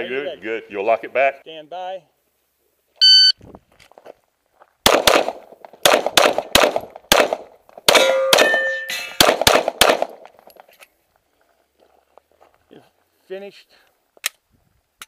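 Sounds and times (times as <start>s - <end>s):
brief ringing tone: 3.0s - 3.4s
shot timer beep: 3.0s - 3.4s
pistol shots: 4.8s - 8.6s, 9.2s - 10.2s.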